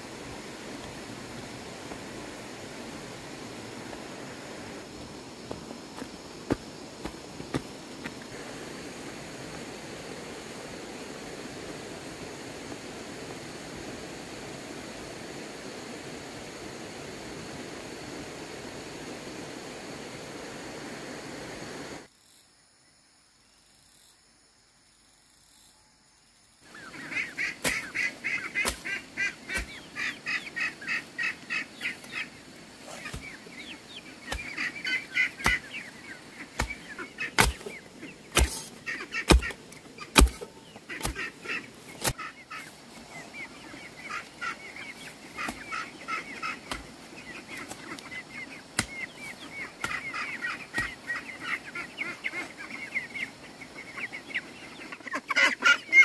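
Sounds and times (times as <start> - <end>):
chickens chattering: 26.7 - 56.0
hoe striking the ground: 27.6 - 27.9, 28.6 - 28.9, 34.3 - 34.7, 35.4 - 35.8, 36.6 - 41.3.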